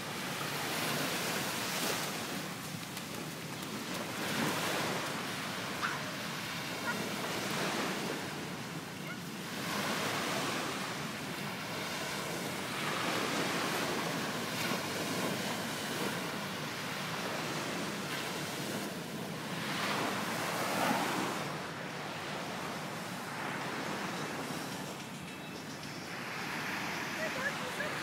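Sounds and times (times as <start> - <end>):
small waves breaking on shore: 0.0 - 25.1, 26.1 - 28.0.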